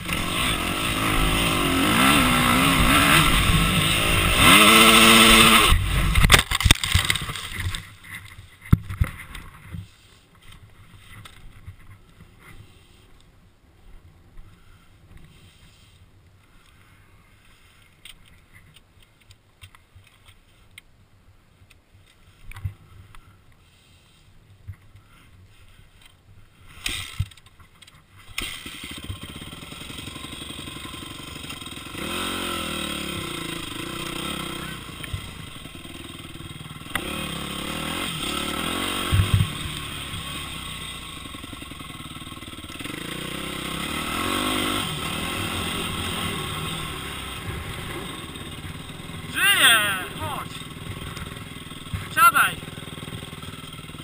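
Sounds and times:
dirt bike engine revving: 0:00.0 - 0:07.9, 0:28.4 - 0:54.0
motorcycle engine running: 0:00.0 - 0:08.0, 0:28.4 - 0:54.0.

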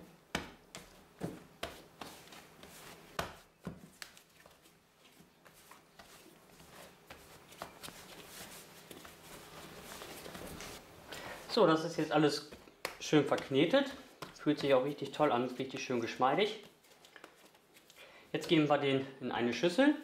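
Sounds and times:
dough thumps and slaps on board: 0:00.3 - 0:02.1, 0:03.1 - 0:04.2, 0:12.5 - 0:14.8.

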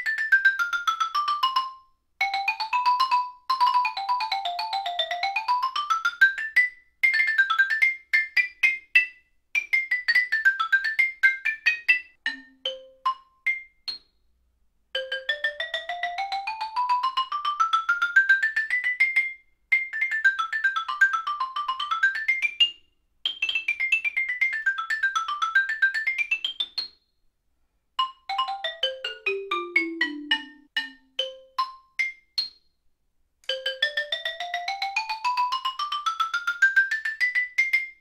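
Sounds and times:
xylophone runs: 0:28.0 - 0:31.8.

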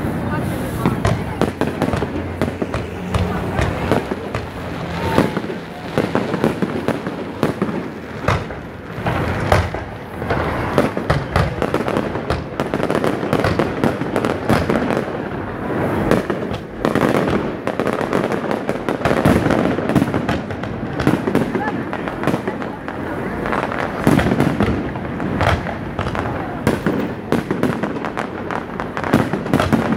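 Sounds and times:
fireworks crackling: 0:00.0 - 0:29.9
firework shells bursting: 0:00.6 - 0:15.0.

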